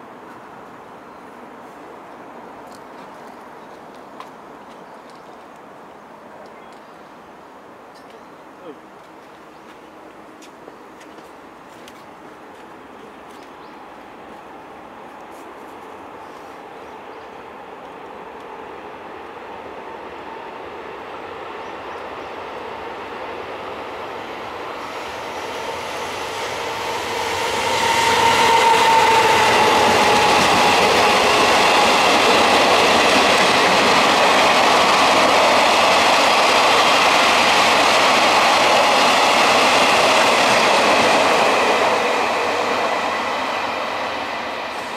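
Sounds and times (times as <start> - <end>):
boxcars running on rails: 8.9 - 44.9
electric locomotive passing: 9.0 - 44.9.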